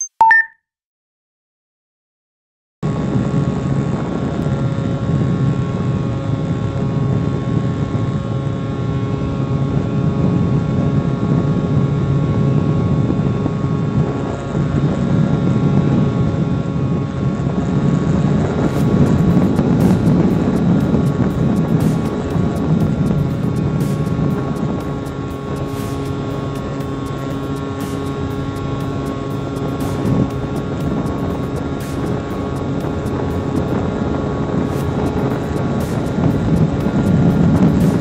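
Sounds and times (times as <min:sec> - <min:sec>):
electric motor and propeller hum: 0:12.3 - 0:38.0
air rushing past microphone: 0:17.6 - 0:38.0.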